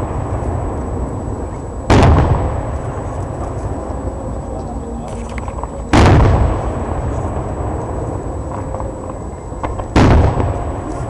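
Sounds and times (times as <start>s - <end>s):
firework booms: 0.0s - 3.6s, 5.9s - 7.8s, 9.6s - 11.0s
low rumble: 0.0s - 11.0s.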